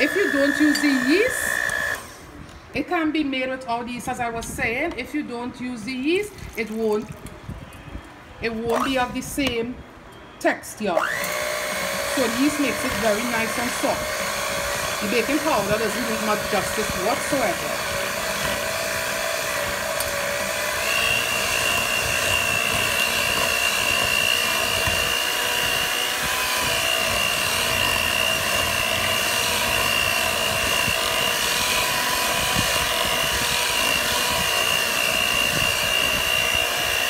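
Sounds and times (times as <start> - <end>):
stand mixer motor whine: 0.0 - 2.1, 11.0 - 37.0.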